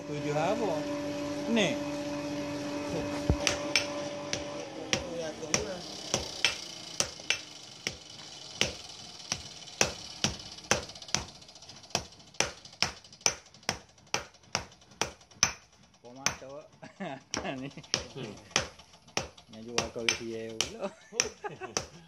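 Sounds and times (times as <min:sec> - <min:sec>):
hammer striking iron on anvil: 0:03.3 - 0:16.5, 0:17.4 - 0:22.0.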